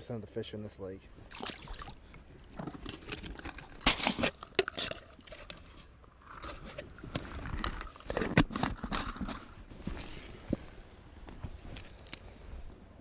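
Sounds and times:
clicks and scrapes of handling gear: 2.6 - 10.3.

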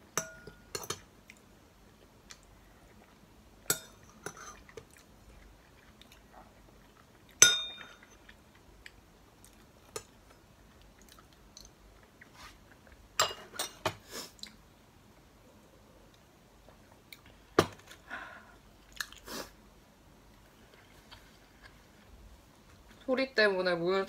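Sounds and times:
spoon clinking ceramic bowl: 0.2 - 1.0, 7.4 - 8.0.

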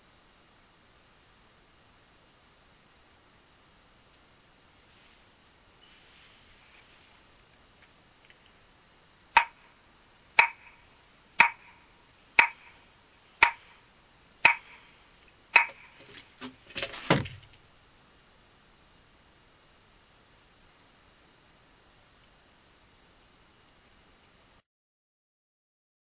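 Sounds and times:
rustling: 4.0 - 8.7, 11.6 - 17.7
sharp ringing knocks: 9.4 - 9.6, 10.4 - 10.8, 11.4 - 11.8, 12.4 - 12.8, 13.4 - 13.8, 14.4 - 14.9, 15.6 - 16.0.

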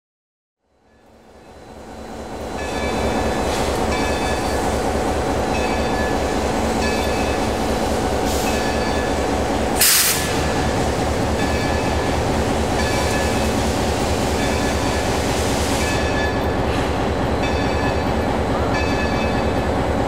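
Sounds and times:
steam locomotive mechanical running: 0.9 - 20.0
loud steam hiss: 7.5 - 8.9, 9.5 - 16.1.

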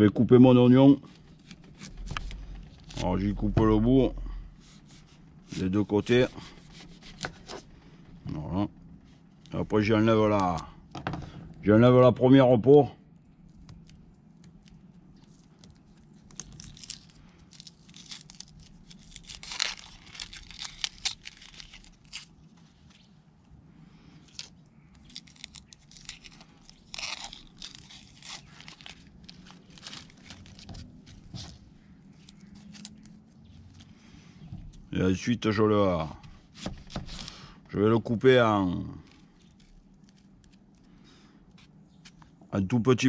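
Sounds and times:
onion skin crackling and tearing: 1.1 - 3.2, 4.2 - 7.5, 9.5 - 10.8, 13.1 - 23.1, 24.0 - 34.1, 38.7 - 42.3.

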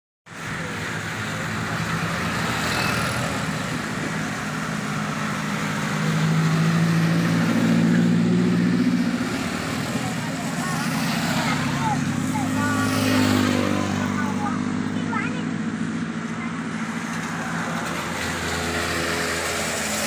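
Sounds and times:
truck engine hum: 0.3 - 20.0
tyres hissing on wet asphalt: 16.8 - 20.0.

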